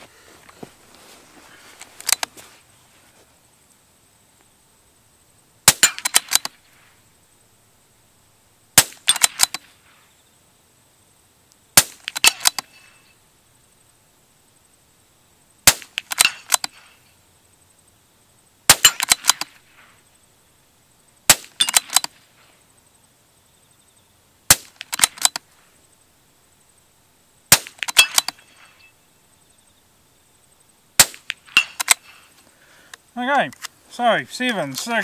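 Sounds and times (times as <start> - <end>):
suppressed rifle shots: 5.6 - 6.7, 8.8 - 9.9, 11.8 - 12.8, 15.6 - 17.0, 18.7 - 19.8, 21.3 - 22.2, 24.5 - 25.5, 27.5 - 28.8, 31.0 - 32.3.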